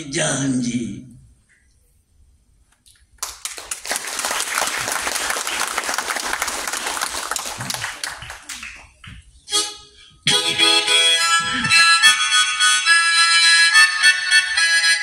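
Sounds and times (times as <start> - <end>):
audience applauding: 3.2 - 9.1
harmonica note: 9.5 - 15.0.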